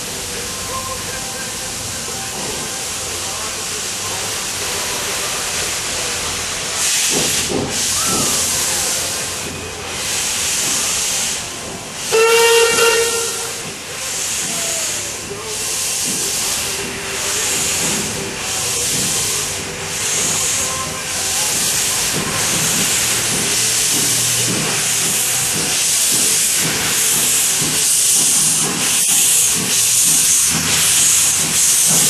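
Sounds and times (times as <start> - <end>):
locomotive exhaust chuffs: 0.0 - 32.0
steam locomotive hissing: 0.0 - 32.0
steam whistle blast: 12.0 - 13.6.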